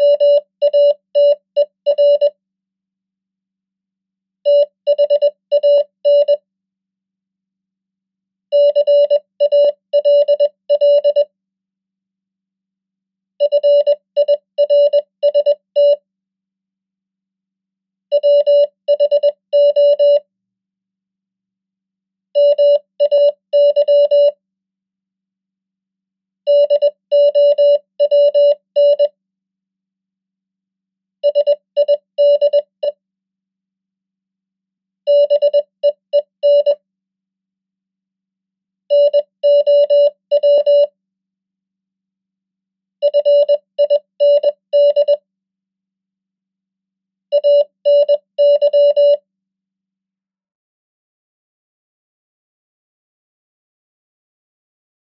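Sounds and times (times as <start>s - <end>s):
morse code beeping: 22.4s - 24.4s, 35.1s - 36.8s, 38.9s - 40.9s, 47.3s - 49.2s.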